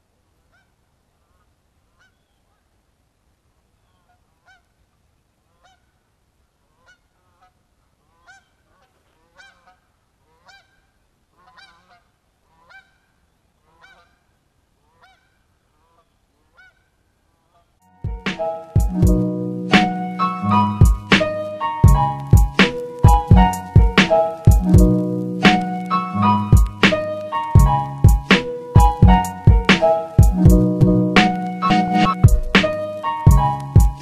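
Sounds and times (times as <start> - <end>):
geese honking: 18.1 - 34.0.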